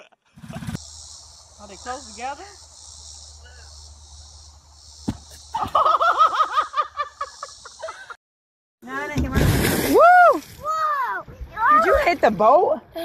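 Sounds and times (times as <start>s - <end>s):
insects chirping: 0.4s - 8.1s
thump on trampoline mat: 5.0s - 5.8s, 9.1s - 9.9s.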